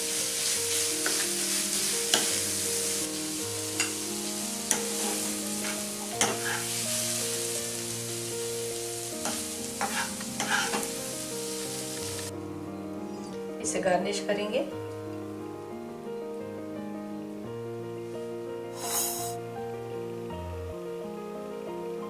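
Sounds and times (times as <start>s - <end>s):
food sizzling in a pan: 0.0s - 12.3s, 18.7s - 19.4s
spatula scraping a pan: 0.3s - 2.4s, 3.7s - 7.5s, 9.2s - 11.8s.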